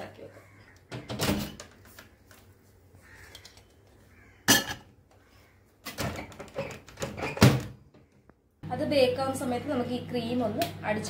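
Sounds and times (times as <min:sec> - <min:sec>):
metal pan clattering on glass: 0:04.5 - 0:04.9.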